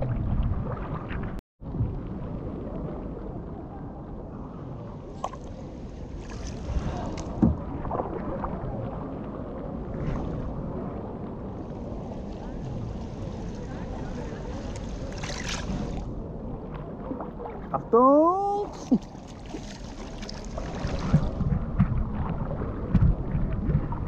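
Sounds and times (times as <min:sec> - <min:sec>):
paddle splashes: 0:05.1 - 0:10.7, 0:11.7 - 0:16.1, 0:18.6 - 0:24.0
water sloshing: 0:05.1 - 0:10.7, 0:11.8 - 0:17.9, 0:18.6 - 0:24.0.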